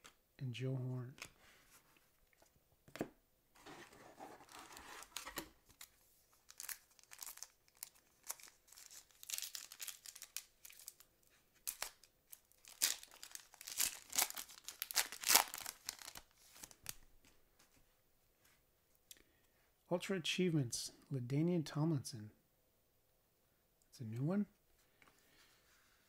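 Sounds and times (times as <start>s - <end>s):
foil wrapper crinkling and ripping: 6.4s - 11.0s, 11.6s - 17.0s.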